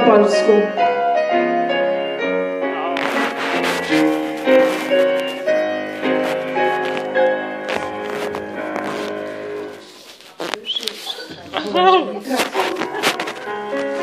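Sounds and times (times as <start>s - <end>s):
grand piano playing: 0.0s - 9.9s.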